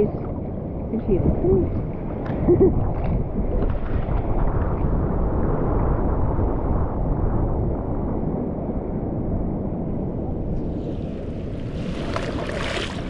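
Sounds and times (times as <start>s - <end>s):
wind buffeting microphone: 0.0s - 13.0s
seawater sloshing and lapping: 10.6s - 13.0s.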